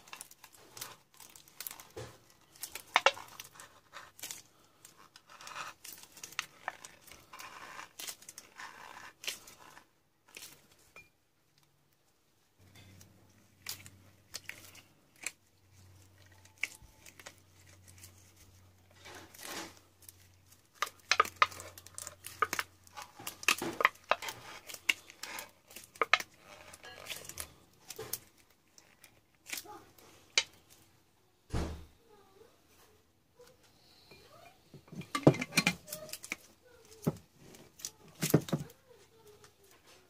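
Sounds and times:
jar lid rustling and clicking: 0:19.1 - 0:29.2, 0:34.8 - 0:38.8.

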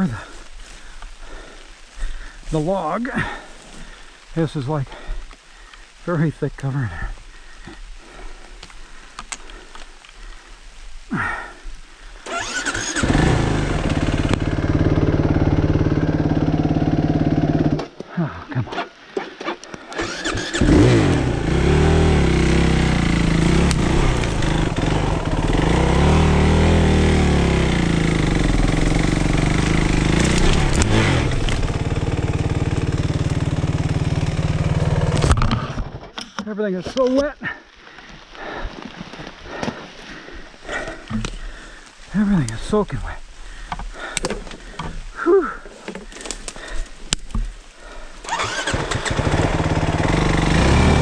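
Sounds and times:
dirt bike engine revving: 0:12.2 - 0:17.9, 0:20.0 - 0:35.8, 0:48.2 - 0:51.0.

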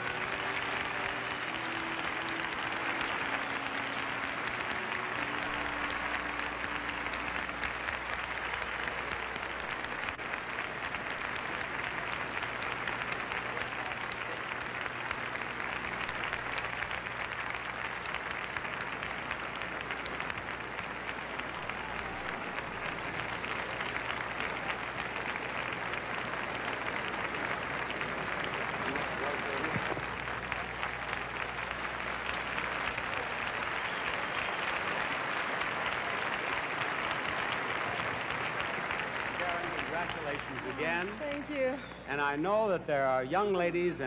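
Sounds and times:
audience applauding: 0:00.0 - 0:44.0.

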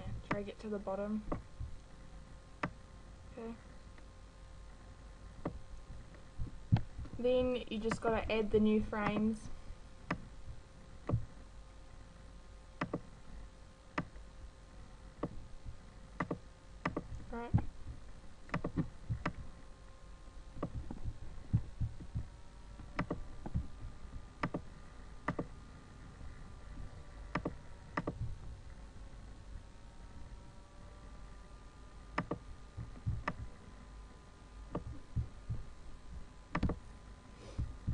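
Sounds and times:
faint steady hum: 0:00.0 - 0:37.9
computer mouse clicking: 0:12.8 - 0:13.1, 0:16.2 - 0:17.2, 0:18.5 - 0:19.4, 0:22.9 - 0:23.7, 0:24.4 - 0:25.5, 0:27.3 - 0:28.4, 0:32.2 - 0:33.5, 0:36.5 - 0:36.8.

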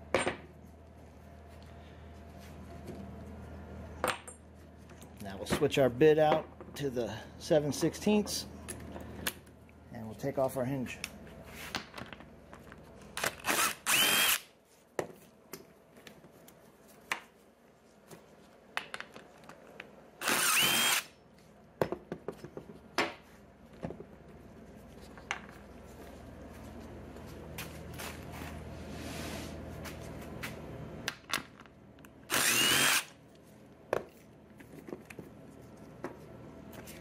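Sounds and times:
impact driver bursts: 0:13.2 - 0:14.5, 0:20.2 - 0:21.1, 0:32.3 - 0:33.1.

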